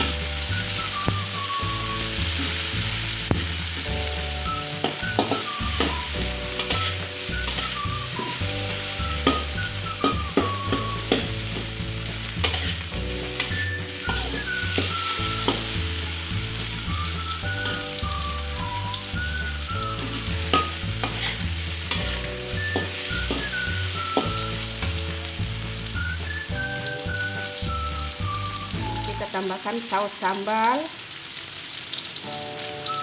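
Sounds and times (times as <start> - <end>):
vegetables sizzling in oil: 0.0 - 33.0
metal spatula scraping a wok: 4.8 - 16.7, 17.4 - 18.1, 19.9 - 25.0.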